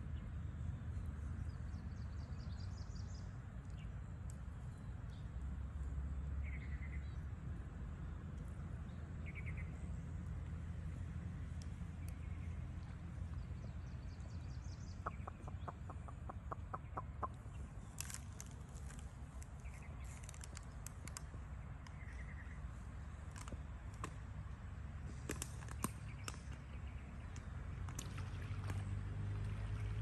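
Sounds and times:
low outdoor rumble: 0.0 - 30.0
bird clucking: 15.0 - 17.4.

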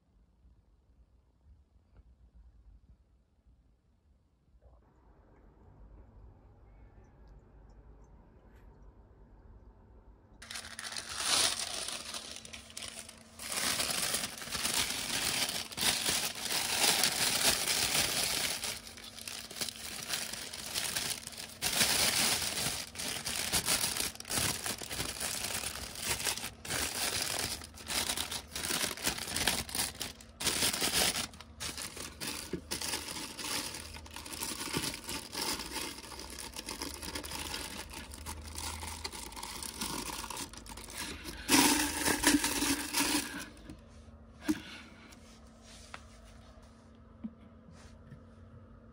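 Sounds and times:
plastic bag crinkling: 10.4 - 43.7.

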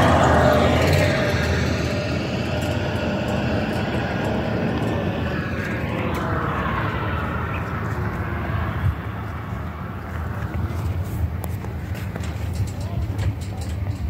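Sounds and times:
engine rumble: 0.0 - 14.0.

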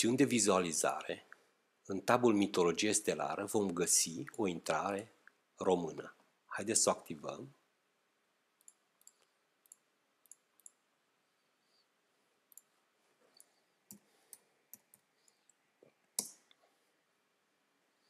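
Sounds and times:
computer mouse clicks: 8.6 - 10.8, 12.5 - 15.6.

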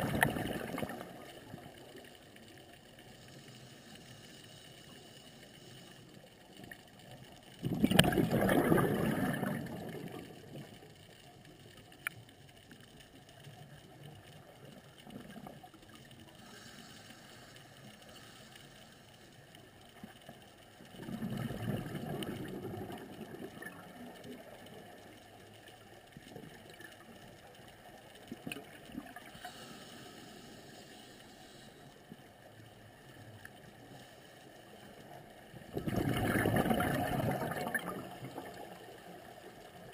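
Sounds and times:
exhaled bubbles gushing: 0.0 - 1.6, 7.6 - 10.7, 20.9 - 24.5, 35.6 - 39.2
regulator inhalation hiss: 3.0 - 6.4, 16.4 - 19.5, 29.2 - 32.5.

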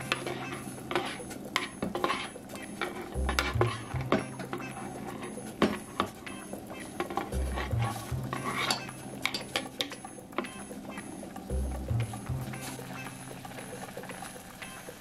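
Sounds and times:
background music with bass: 3.1 - 5.3, 7.3 - 9.3, 11.5 - 15.0.

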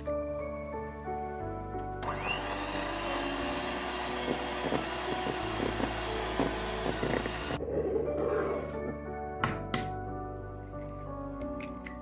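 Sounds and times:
electric hand mixer whining: 2.0 - 7.6.

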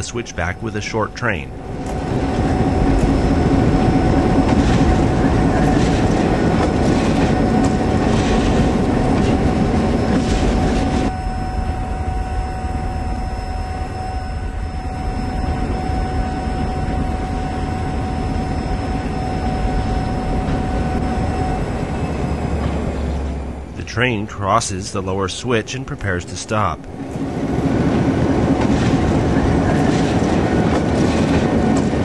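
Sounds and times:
diesel locomotive drone: 0.0 - 32.0
freight train wheels clattering: 1.6 - 11.1, 26.9 - 32.0.

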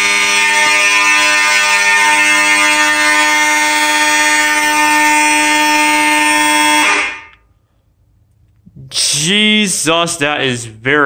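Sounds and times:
fire alarm horns buzzing: 0.0 - 7.5.

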